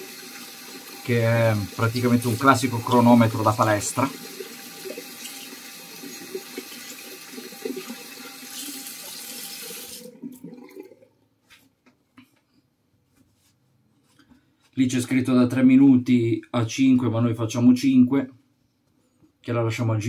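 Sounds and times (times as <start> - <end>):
water running from tap into sink: 0.0 - 11.0.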